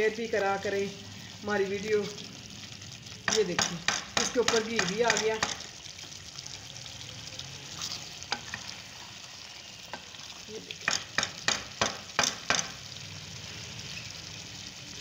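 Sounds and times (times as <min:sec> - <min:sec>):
curry sizzling in a pan: 0:00.0 - 0:15.0
spoon knocking against pan: 0:03.3 - 0:05.6, 0:10.8 - 0:12.8.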